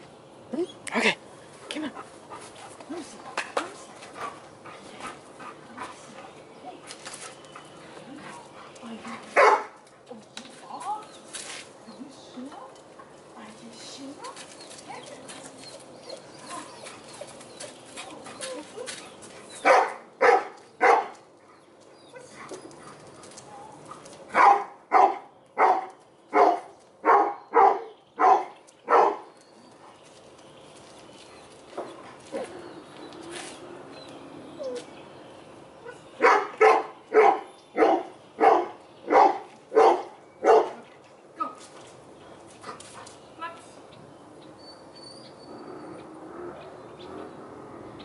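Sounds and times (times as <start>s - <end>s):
dog barking: 9.4s - 9.7s, 19.6s - 21.1s, 24.3s - 29.2s, 36.2s - 40.8s.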